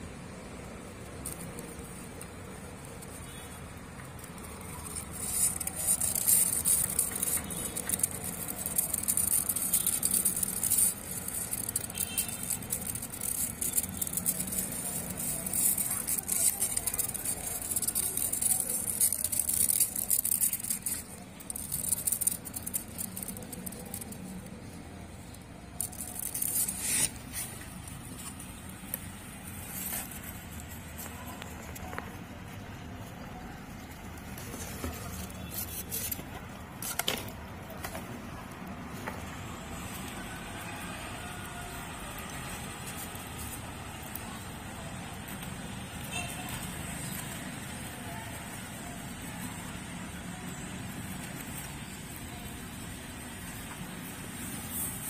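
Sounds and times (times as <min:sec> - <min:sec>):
small scratchy clicks: 0:00.6 - 0:38.7
rustling in hamster bedding: 0:01.0 - 0:37.0.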